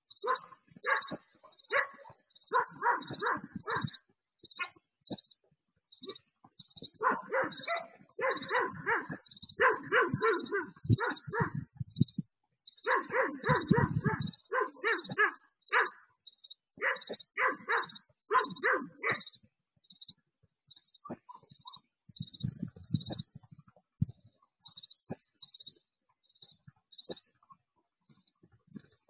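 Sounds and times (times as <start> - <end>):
dog barking: 0.2 - 4.0, 4.6 - 4.8, 6.9 - 11.7, 12.8 - 16.1, 16.8 - 19.4.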